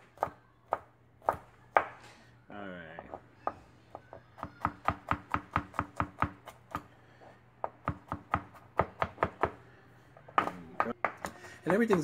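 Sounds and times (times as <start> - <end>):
knife chopping on plastic board: 7.6 - 9.6, 10.3 - 12.0.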